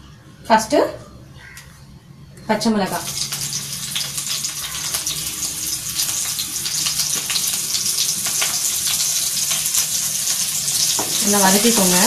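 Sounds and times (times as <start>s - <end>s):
chillies sizzling in hot oil: 2.6s - 12.0s.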